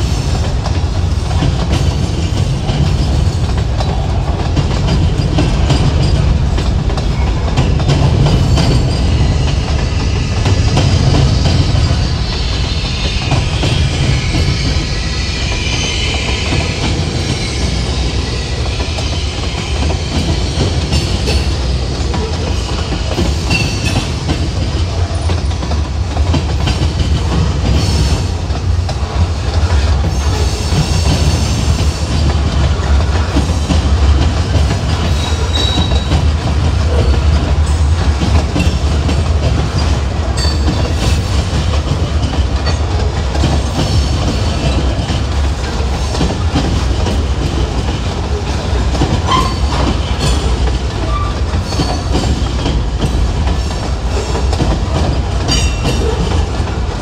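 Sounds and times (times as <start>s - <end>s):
freight train rumble: 0.0s - 57.0s
wheels clicking over rail joints: 16.5s - 57.0s.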